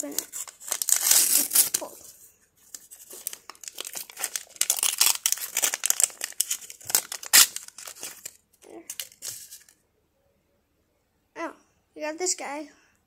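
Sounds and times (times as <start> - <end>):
wrapper tearing and crinkling: 0.0 - 2.1, 2.7 - 9.8.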